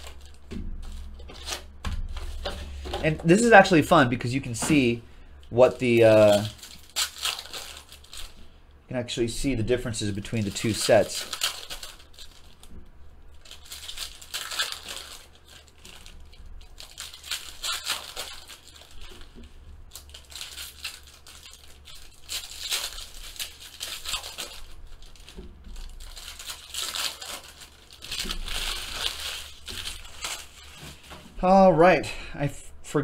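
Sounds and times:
plastic wrapper tearing and crumpling: 0.0 - 31.2.

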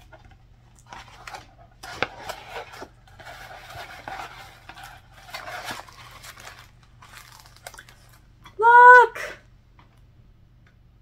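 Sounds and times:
paper mailer rustling and crinkling: 0.1 - 8.3.

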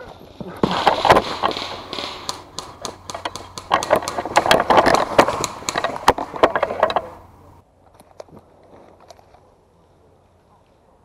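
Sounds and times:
irregular clicks and knocks: 0.6 - 7.6
running footsteps: 0.6 - 7.6.

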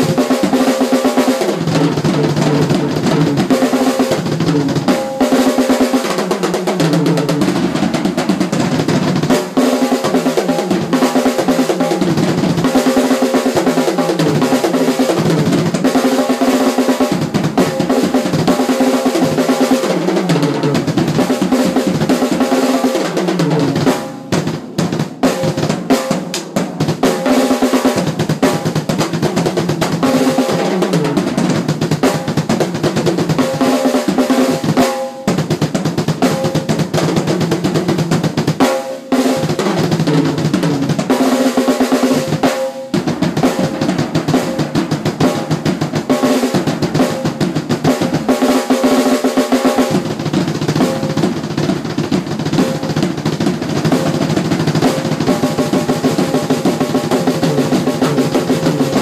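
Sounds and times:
snare and tom fills: 0.0 - 59.0
bass drum: 1.6 - 5.6, 6.6 - 27.3, 27.9 - 38.6, 39.4 - 41.2, 43.0 - 48.3, 49.8 - 59.0.

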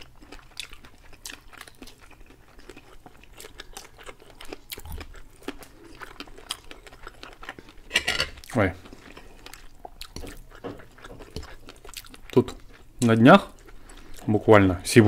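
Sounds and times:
people chewing: 0.0 - 14.7.

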